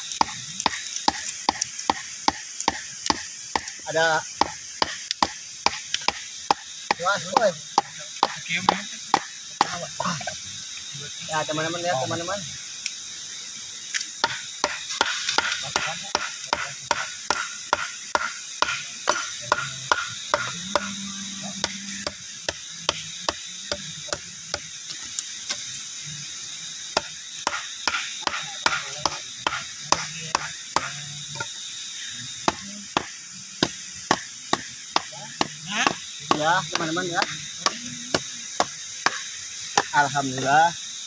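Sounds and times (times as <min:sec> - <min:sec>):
machete chopping bamboo: 0:00.1 - 0:09.8, 0:14.2 - 0:20.9, 0:27.0 - 0:31.0, 0:32.4 - 0:40.0.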